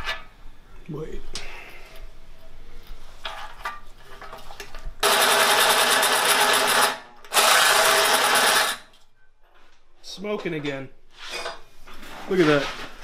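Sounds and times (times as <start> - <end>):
electric drill cutting metal: 5.0 - 8.8.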